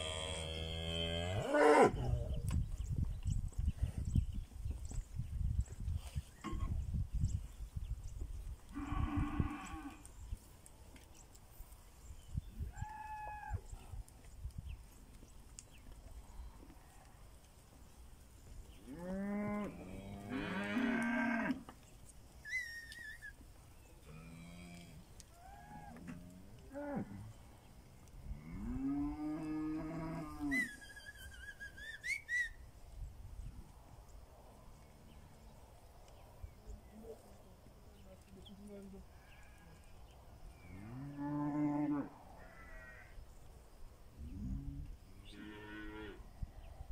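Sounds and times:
high wavering whistle: 30.6 - 32.6.

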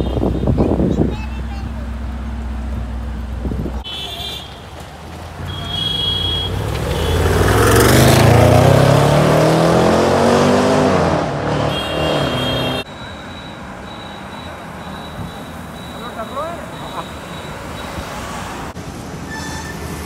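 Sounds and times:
road traffic: 0.0 - 20.0
car engine accelerating past: 6.5 - 11.7.

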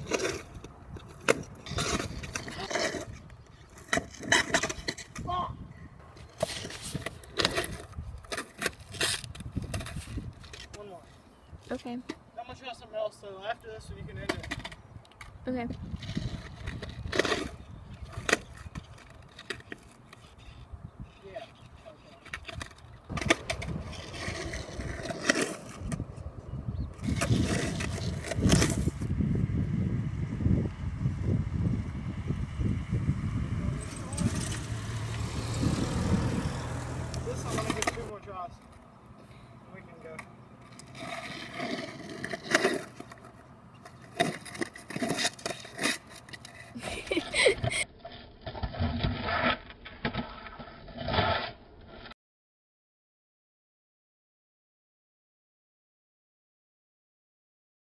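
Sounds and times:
skateboard wheels on asphalt: 0.0 - 52.2
skateboard clacks: 22.2 - 26.1.

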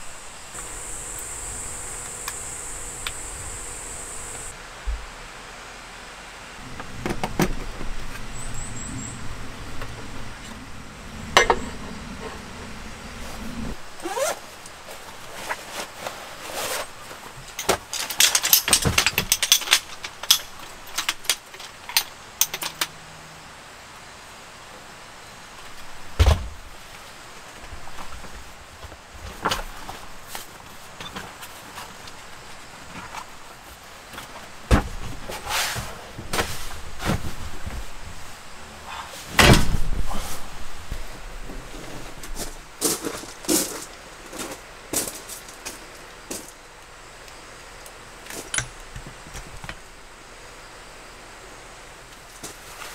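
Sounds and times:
tripod legs clicking and rattling: 17.6 - 22.9
loud thump: 39.4 - 40.1.

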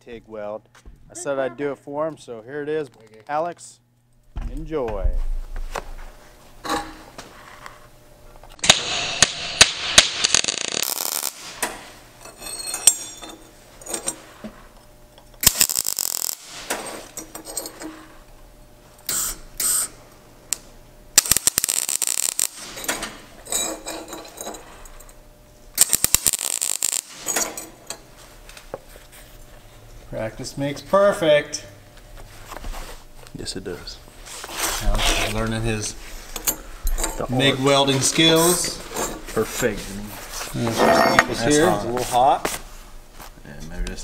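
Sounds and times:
welding arc crackling: 8.0 - 12.2, 15.2 - 17.8, 19.0 - 24.0, 24.6 - 28.7.

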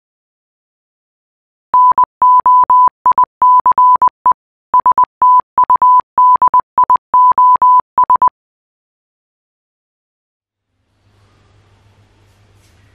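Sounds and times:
morse code beeps: 1.8 - 8.3.

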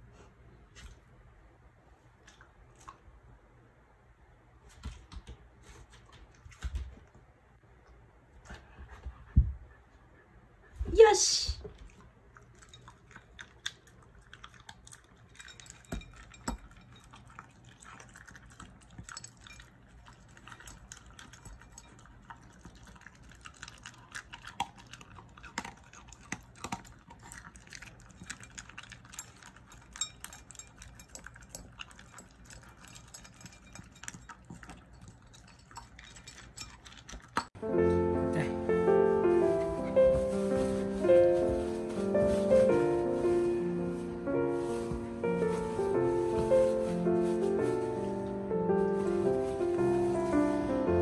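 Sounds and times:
dog crunching dry kibble: 11.8 - 37.6.

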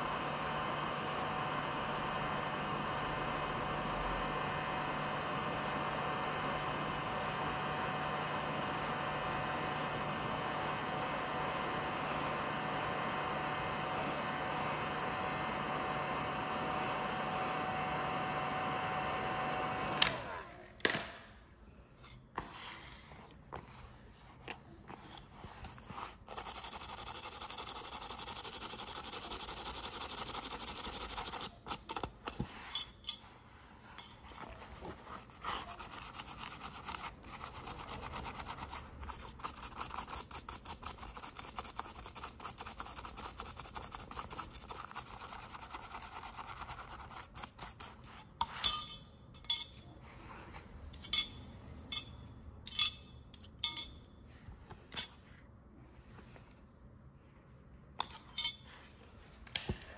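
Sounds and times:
small motor running: 26.3 - 32.4.

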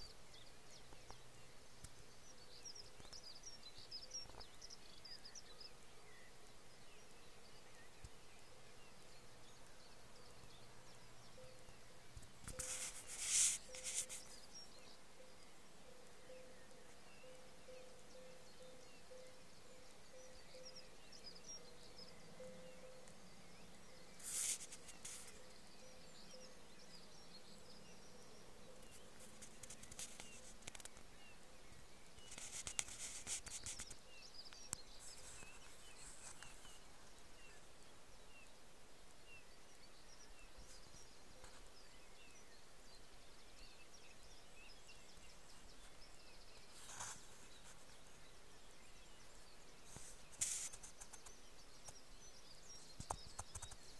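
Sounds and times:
small birds chirping: 0.0 - 53.9
phone rustling against twigs: 12.2 - 14.9, 24.1 - 25.6, 28.8 - 31.3, 32.2 - 37.7, 46.7 - 48.4, 49.8 - 52.0.

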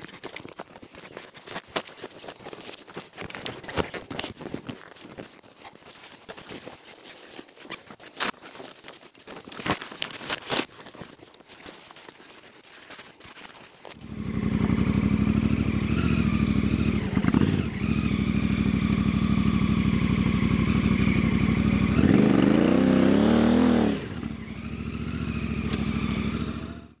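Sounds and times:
motorcycle engine revving: 14.0 - 27.0.

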